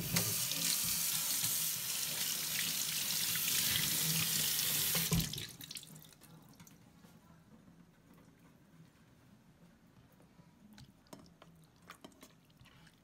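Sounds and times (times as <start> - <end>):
faucet running into steel sink: 0.0 - 5.8.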